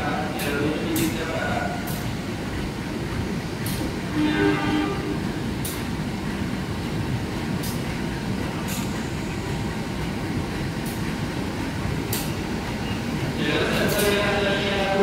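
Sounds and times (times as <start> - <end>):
train rolling rumble: 0.0 - 15.0
train horn blast: 4.1 - 5.5.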